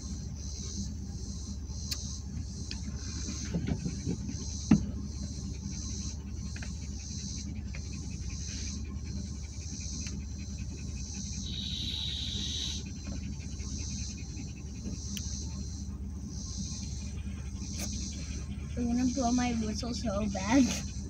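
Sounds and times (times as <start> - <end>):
engine idling hum: 0.0 - 21.0
insects droning in grass: 0.0 - 21.0.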